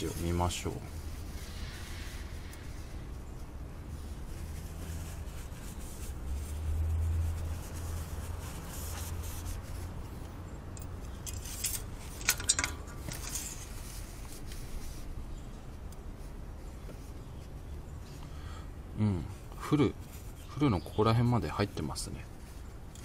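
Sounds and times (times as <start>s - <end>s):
rustling: 0.0s - 18.2s, 19.9s - 23.0s
paper towel wiping dipstick: 2.8s - 10.2s.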